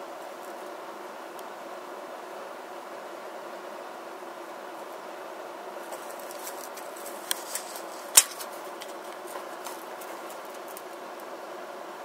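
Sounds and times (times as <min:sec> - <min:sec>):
low background noise: 0:00.0 - 0:12.0.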